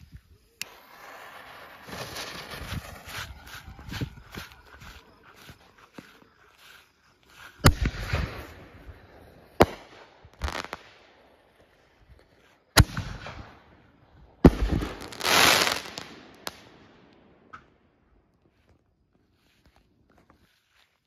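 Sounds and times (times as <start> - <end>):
firework crackling: 0.2 - 13.6, 14.4 - 16.9.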